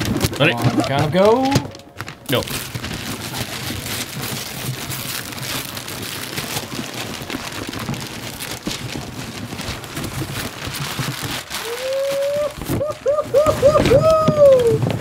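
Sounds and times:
wrapping paper tearing and crumpling: 0:00.0 - 0:15.0.

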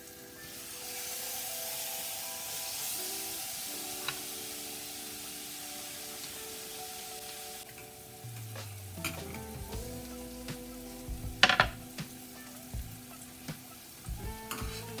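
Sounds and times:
meat sizzling in a skillet: 0:00.0 - 0:15.0
soft background music: 0:00.0 - 0:15.0
cutting board clattering: 0:11.4 - 0:11.8.

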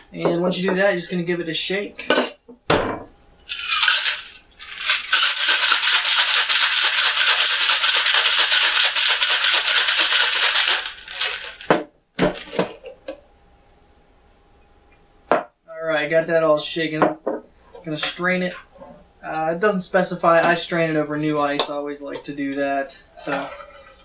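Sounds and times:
ice rattling in a shaker: 0:03.5 - 0:11.7.

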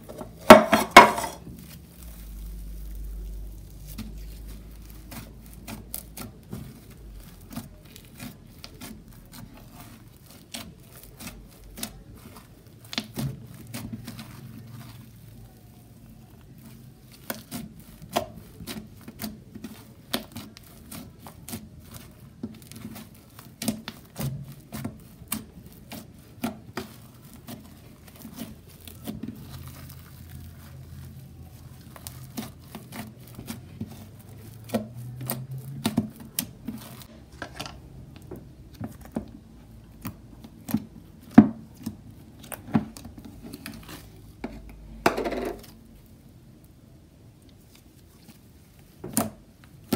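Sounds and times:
slime crackling and popping: 0:01.4 - 0:37.2.

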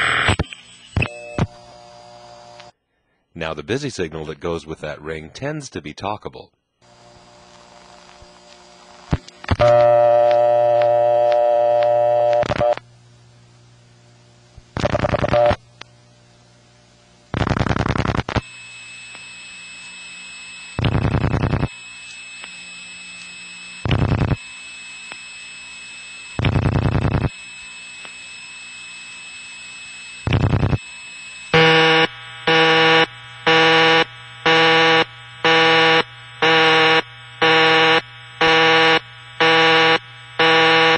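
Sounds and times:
busy signal beeping: 0:09.6 - 0:12.8
line hiss and steady tone: 0:18.0 - 0:40.9.

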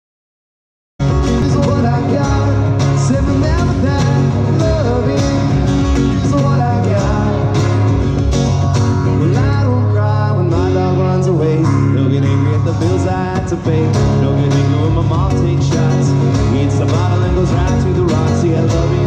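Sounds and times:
acoustic guitar strummed: 0:01.0 - 0:19.0
bass line: 0:01.0 - 0:19.0
man singing: 0:01.2 - 0:07.8, 0:09.1 - 0:19.0.

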